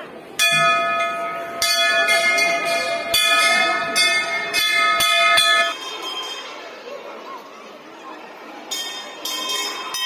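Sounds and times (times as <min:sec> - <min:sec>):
temple bell ringing: 0:00.4 - 0:06.7, 0:08.7 - 0:10.0.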